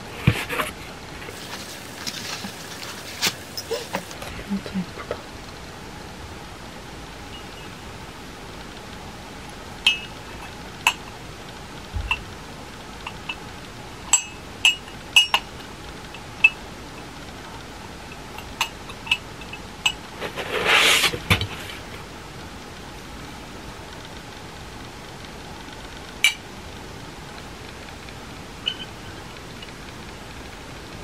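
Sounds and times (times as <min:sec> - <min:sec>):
cardboard box scraping: 0:00.0 - 0:04.1, 0:20.2 - 0:21.9
ceramic mugs and spoon clinking: 0:09.9 - 0:11.0, 0:14.1 - 0:16.6.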